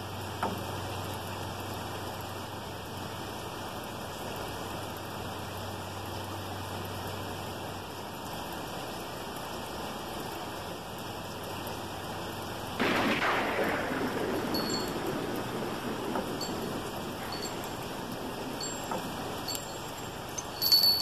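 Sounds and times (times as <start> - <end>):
steady rain: 0.0 - 21.0
thunder clap rolling: 12.8 - 21.0.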